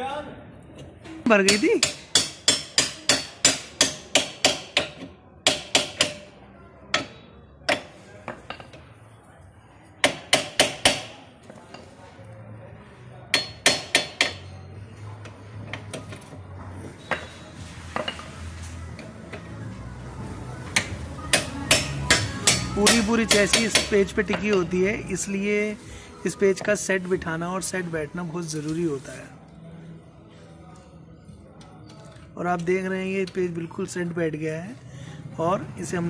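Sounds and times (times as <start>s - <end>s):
hammer striking steel bolt: 13.3s - 14.4s.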